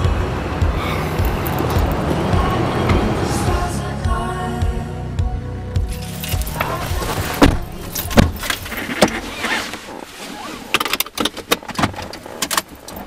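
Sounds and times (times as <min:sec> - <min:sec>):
keys jingling: 0:05.9 - 0:09.3
seat and clothing rustle: 0:05.9 - 0:13.0
car doors slamming: 0:06.0 - 0:09.4.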